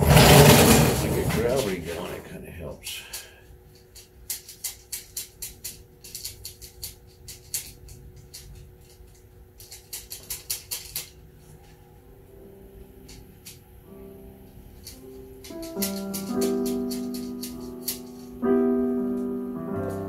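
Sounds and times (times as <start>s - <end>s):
faint steady hum: 0.8s - 20.0s.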